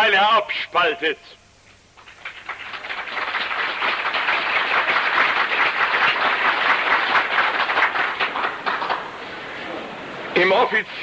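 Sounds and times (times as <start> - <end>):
audience applause: 2.0 - 10.3.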